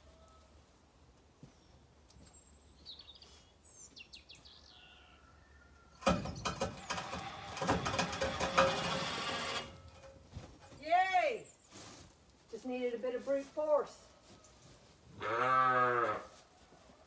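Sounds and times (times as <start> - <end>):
fast metallic ratcheting: 6.0 - 10.1.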